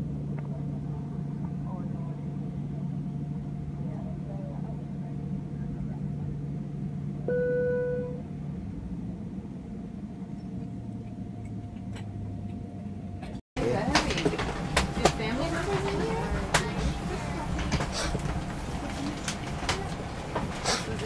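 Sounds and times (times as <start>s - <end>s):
jet engine cabin drone: 0.0s - 21.0s
steady tone: 6.8s - 13.2s.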